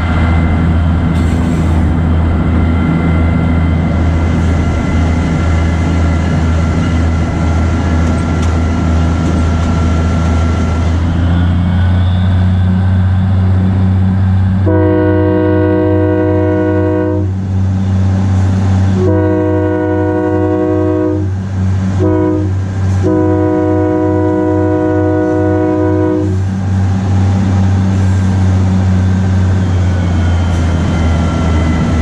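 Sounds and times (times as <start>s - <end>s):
locomotive diesel engine running: 0.0s - 32.0s
locomotive air horn blast: 14.6s - 17.4s, 18.9s - 26.5s.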